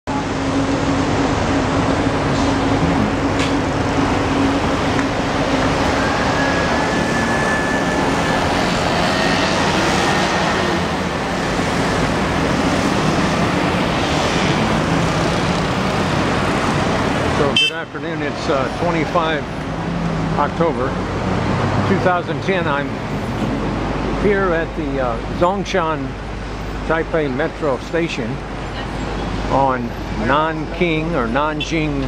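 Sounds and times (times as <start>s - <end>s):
low engine hum: 0.1s - 6.0s
street traffic engine and tyre noise: 0.1s - 32.0s.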